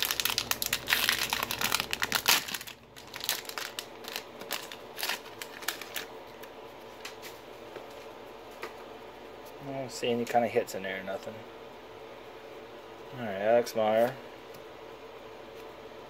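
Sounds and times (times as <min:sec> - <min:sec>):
foil wrapper crinkling: 0:00.0 - 0:07.3.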